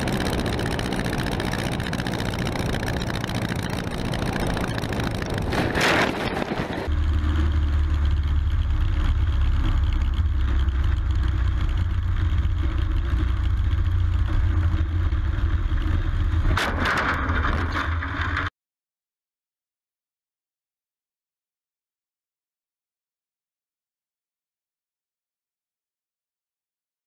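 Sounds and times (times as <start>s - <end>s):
wind drone: 0.0s - 17.9s
light plane engine drone: 0.0s - 18.4s.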